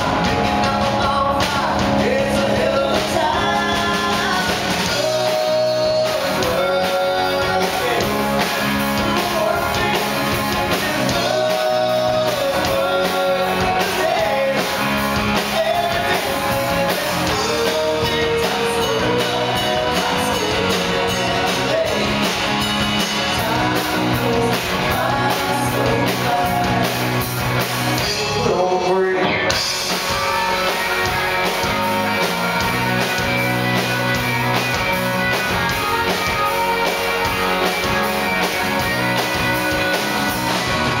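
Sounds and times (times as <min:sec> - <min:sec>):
lead vocal singing: 0:00.0 - 0:33.1
bass guitar: 0:00.0 - 0:41.0
drum kit with cymbals: 0:00.0 - 0:41.0
electric guitars: 0:00.0 - 0:41.0.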